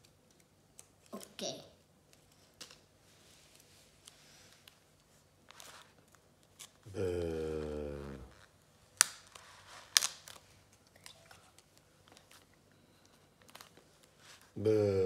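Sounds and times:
faint paper rustling: 0:02.0 - 0:06.9, 0:09.2 - 0:14.6
child humming: 0:06.9 - 0:08.4, 0:14.6 - 0:15.0.

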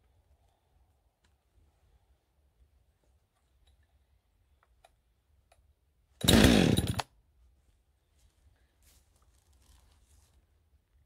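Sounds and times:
chainsaw engine briefly firing: 0:06.2 - 0:07.1.

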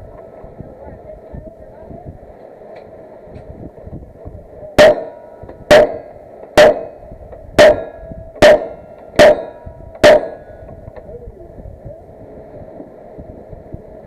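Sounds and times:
gunshots: 0:04.8 - 0:07.0, 0:07.6 - 0:10.6
metallic ring: 0:04.8 - 0:10.7.

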